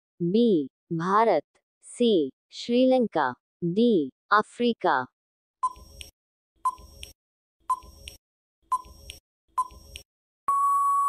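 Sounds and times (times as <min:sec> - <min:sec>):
timer ticks: 0:06.7 - 0:10.1
steady electronic beep: 0:10.5 - 0:11.0.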